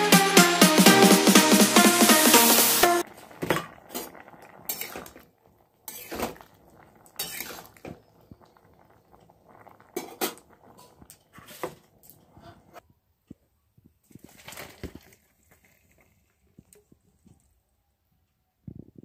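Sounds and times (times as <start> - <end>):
spatula scraping a pan: 3.4 - 5.2, 5.9 - 8.4, 9.9 - 12.8.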